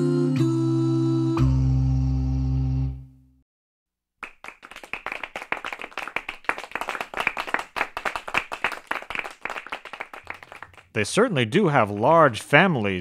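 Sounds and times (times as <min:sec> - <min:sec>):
audience clapping: 0:04.2 - 0:13.0.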